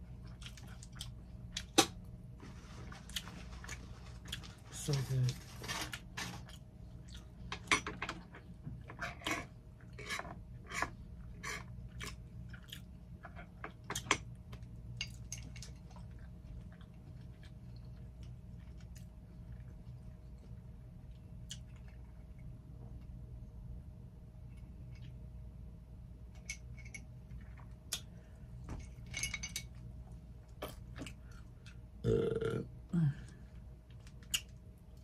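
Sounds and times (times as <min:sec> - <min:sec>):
chewing food: 0:00.1 - 0:01.8, 0:02.7 - 0:05.0, 0:05.8 - 0:23.2.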